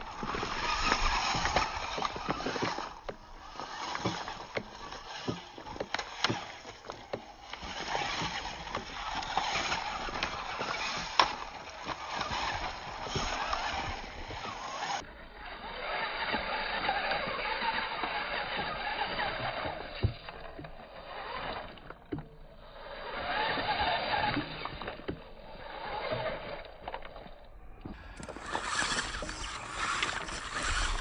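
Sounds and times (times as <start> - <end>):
pebbles crunching under tyres: 0.0 - 15.0.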